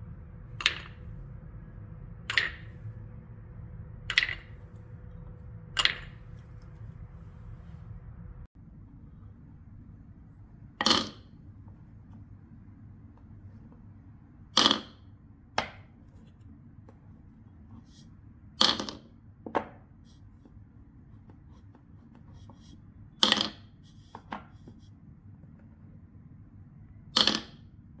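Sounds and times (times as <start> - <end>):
wooden balls clacking: 0.6 - 1.0, 2.2 - 2.8, 4.0 - 4.6, 5.7 - 6.2, 10.8 - 11.3, 14.6 - 15.9, 18.6 - 19.8, 23.2 - 23.7, 27.1 - 27.7.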